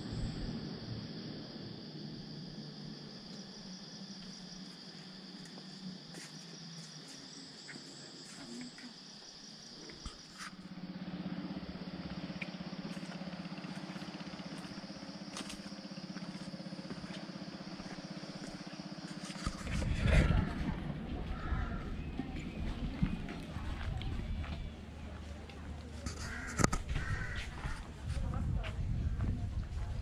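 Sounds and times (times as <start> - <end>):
insects trilling: 0.0 - 28.0
low fast-pulsing drone: 17.5 - 25.1.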